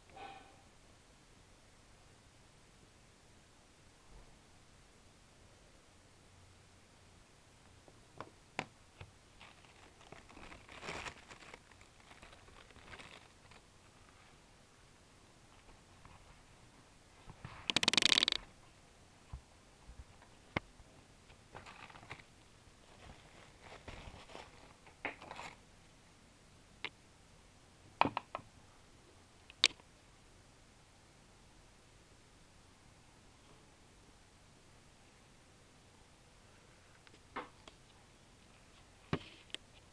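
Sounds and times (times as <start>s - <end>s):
plastic bag crinkling: 9.3s - 13.7s, 21.6s - 25.6s.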